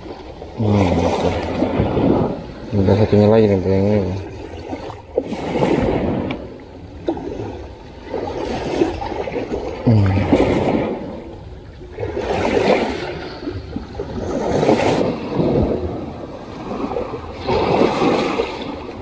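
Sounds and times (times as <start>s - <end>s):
small waves washing on shore: 0.0s - 19.0s
low voiced hum: 9.8s - 10.7s.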